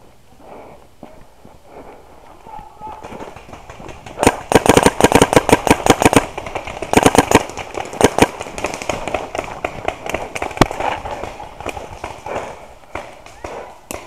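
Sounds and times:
paintball marker firing: 3.0 - 14.0.

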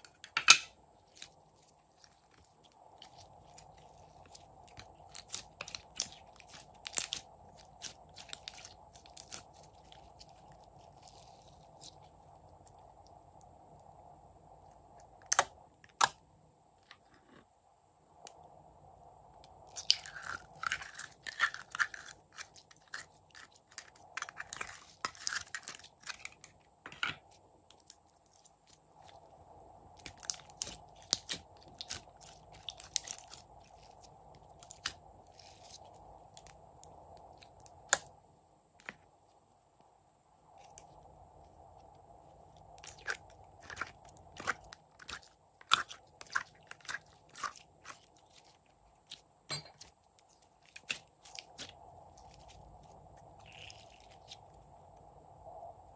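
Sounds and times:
slime crackling and popping: 0.4 - 12.8, 19.5 - 26.6, 29.9 - 38.1, 42.8 - 49.2, 50.3 - 52.6.

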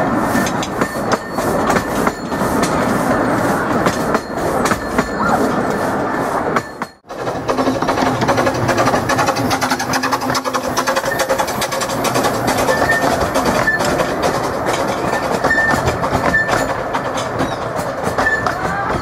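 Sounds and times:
steam locomotive clattering past: 0.0 - 19.0
high squeaks: 3.9 - 6.0, 8.8 - 19.0.

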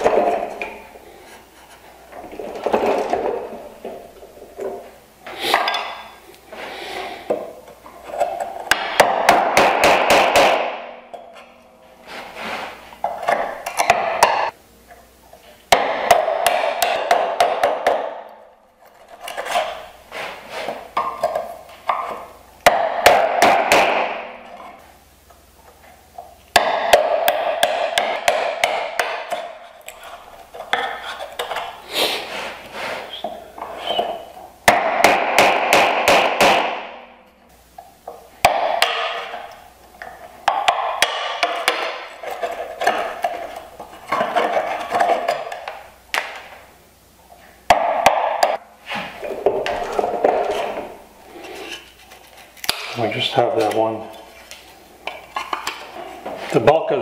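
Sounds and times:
mallet striking wood chisel: 8.7 - 10.9, 15.7 - 18.3, 22.6 - 24.4, 26.5 - 29.5, 34.7 - 37.0, 38.4 - 39.5, 40.4 - 42.1.

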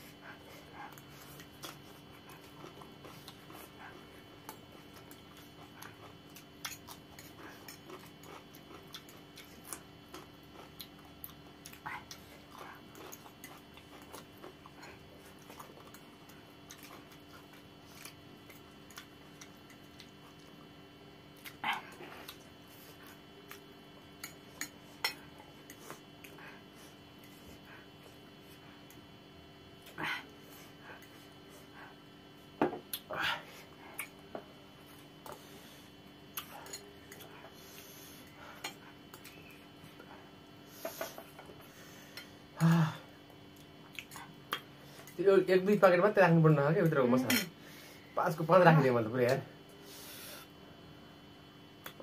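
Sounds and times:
faint steady hum: 0.0 - 52.0
chewing and slurping noodles: 0.1 - 20.6.

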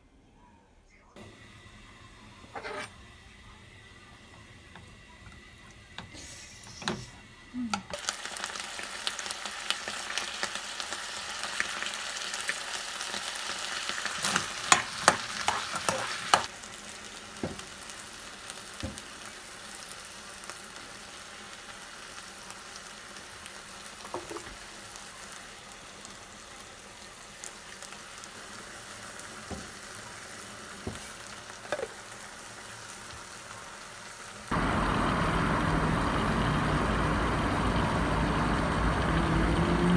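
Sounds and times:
food sizzling in frying pan: 1.2 - 39.0
utensil clacking against pan: 14.7 - 16.5.

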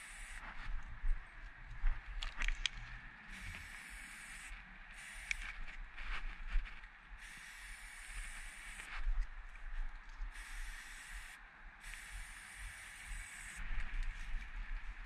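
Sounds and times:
spray paint can hissing: 0.0 - 0.4, 3.3 - 5.4, 7.2 - 8.9, 10.3 - 13.6.

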